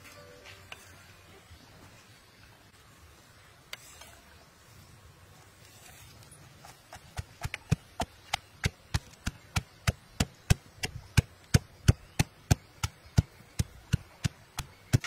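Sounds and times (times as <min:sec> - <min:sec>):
pestle thudding in stone mortar: 0:06.9 - 0:15.0.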